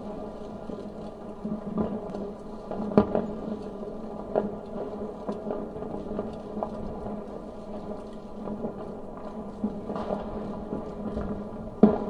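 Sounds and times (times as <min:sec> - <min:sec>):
muffled fireworks bangs and pops: 0:00.0 - 0:12.0.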